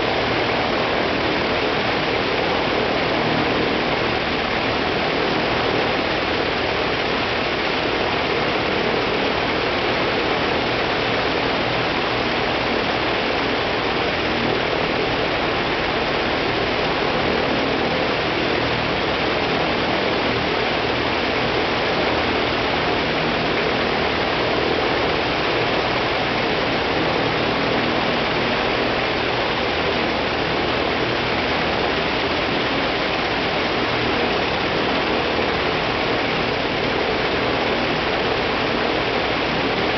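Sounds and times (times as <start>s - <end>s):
radial aircraft engine droning: 0.0s - 39.9s.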